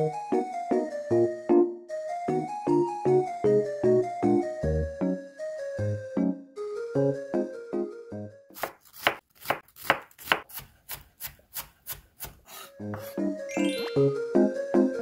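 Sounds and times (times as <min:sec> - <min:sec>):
light background music: 0:00.0 - 0:08.6, 0:12.6 - 0:15.0
knife chopping on wooden board: 0:08.5 - 0:13.3.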